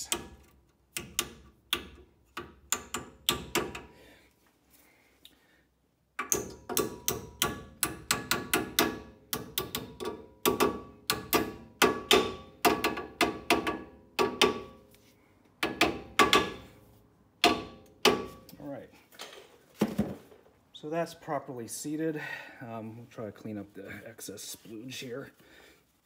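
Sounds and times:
small hammer tapping metal: 0.0s - 3.9s, 6.2s - 14.8s, 15.6s - 16.7s.

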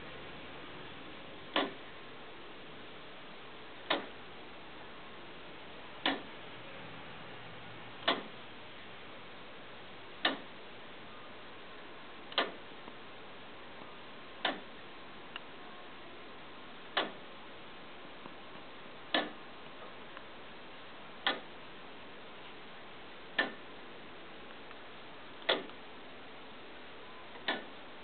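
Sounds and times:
wooden clock ticking slowly: 1.5s - 1.8s, 3.8s - 4.2s, 6.0s - 6.3s, 8.0s - 8.4s, 10.2s - 10.6s, 12.3s - 12.7s, 14.4s - 14.8s, 16.9s - 17.2s, 19.1s - 20.0s, 21.2s - 21.6s, 23.3s - 23.7s, 25.4s - 25.8s, 27.3s - 27.8s.

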